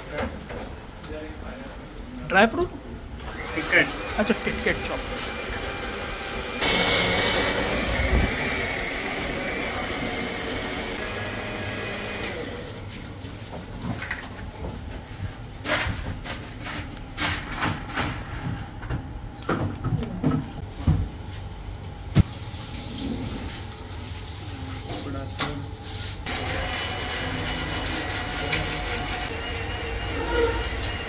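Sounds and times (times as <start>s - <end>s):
electric blender running: 3.2s - 12.9s, 26.3s - 31.0s.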